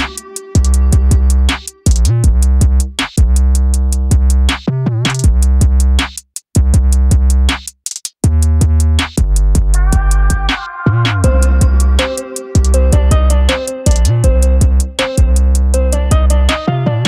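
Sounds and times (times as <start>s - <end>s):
electronic music with drum machine: 0.0s - 4.4s, 9.6s - 17.0s.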